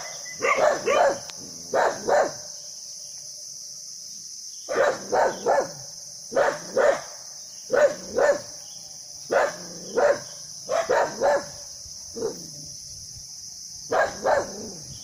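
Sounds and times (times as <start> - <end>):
dog barking: 0.0 - 2.5, 4.7 - 7.1, 7.7 - 8.5, 9.3 - 11.6, 13.9 - 14.8.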